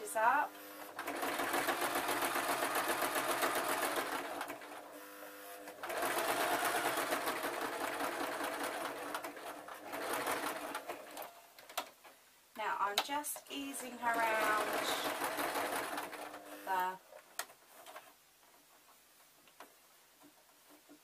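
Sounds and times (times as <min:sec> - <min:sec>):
sewing machine running fast: 0:01.0 - 0:04.8, 0:05.8 - 0:11.2, 0:14.1 - 0:16.9.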